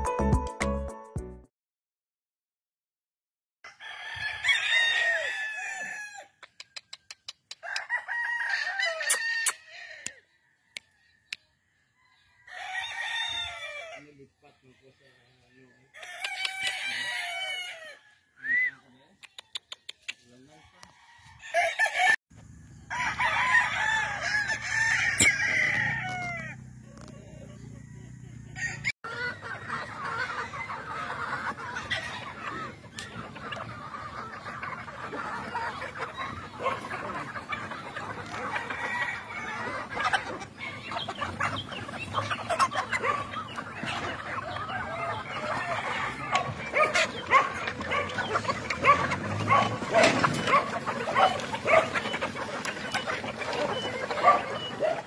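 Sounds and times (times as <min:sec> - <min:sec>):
rooster crowing: 0:03.6 - 0:06.4, 0:07.6 - 0:11.1, 0:11.9 - 0:14.0, 0:15.6 - 0:18.6, 0:20.6 - 0:30.8, 0:38.2 - 0:40.1, 0:44.6 - 0:51.9
chickens clucking: 0:03.8 - 0:55.0.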